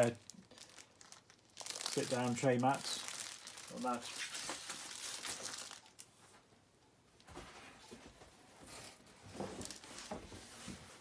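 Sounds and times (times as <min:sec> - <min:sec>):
rustling in cardboard box: 0:08.6 - 0:11.0.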